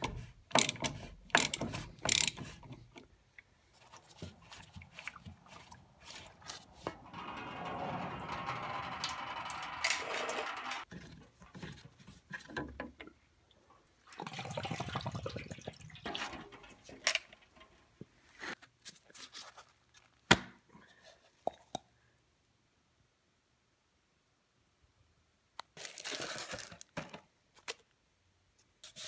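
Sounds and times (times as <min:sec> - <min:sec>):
fuel pouring and splashing: 0:14.0 - 0:17.6.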